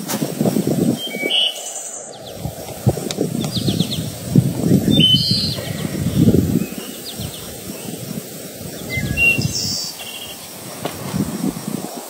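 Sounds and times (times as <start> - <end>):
small birds chirping: 0.9 - 11.9
low uneven rumble: 2.2 - 9.8.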